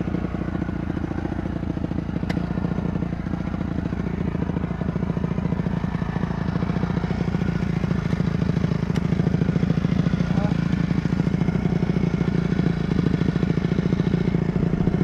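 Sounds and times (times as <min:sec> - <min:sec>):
dirt bike engine idling: 0:00.0 - 0:15.0.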